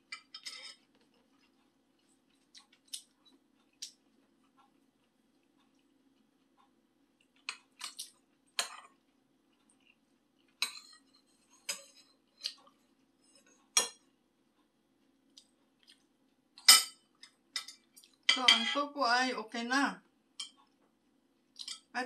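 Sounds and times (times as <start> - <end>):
metal fork clinking on a dish: 0.0 - 0.9, 10.6 - 12.1, 13.8 - 14.0, 21.6 - 21.9
faint low hum: 0.0 - 22.0.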